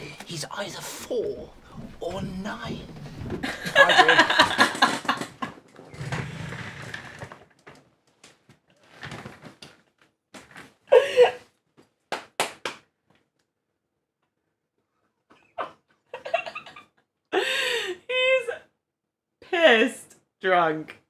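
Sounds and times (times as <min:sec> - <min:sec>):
person flopping onto a bed: 0:01.8 - 0:03.8
sharp slaps: 0:12.1 - 0:12.9.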